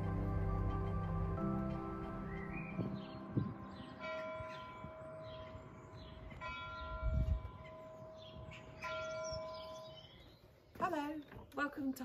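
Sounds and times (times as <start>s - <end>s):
birds chirping: 1.3s - 12.0s
church bell tolling: 2.8s - 10.0s.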